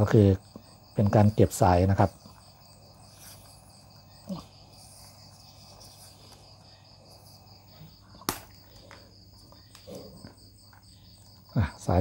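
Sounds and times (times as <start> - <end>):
crickets chirring: 0.0 - 12.0
sharp click: 8.2 - 8.6.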